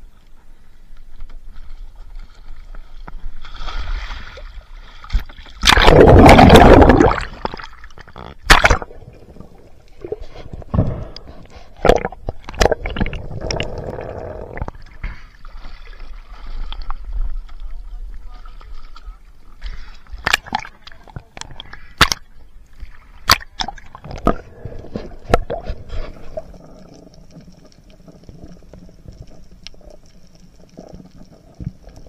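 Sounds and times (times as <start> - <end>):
water sloshing and gurgling: 1.1 - 32.0
loud splash into water: 5.6 - 7.6, 8.5 - 8.9.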